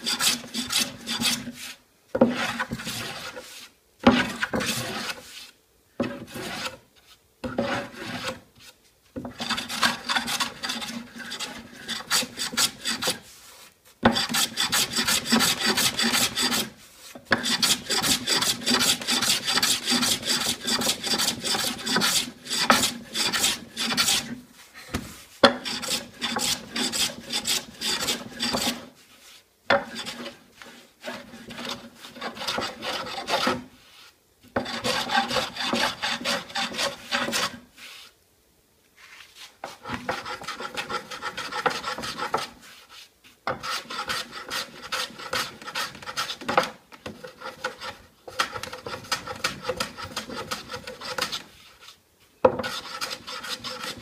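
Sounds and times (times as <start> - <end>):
hand tool rasping wood edge: 9.3 - 13.2, 14.1 - 16.7, 17.3 - 24.3, 25.4 - 28.8, 31.1 - 33.6, 34.6 - 37.6, 39.6 - 42.5, 43.5 - 51.5, 52.6 - 54.0.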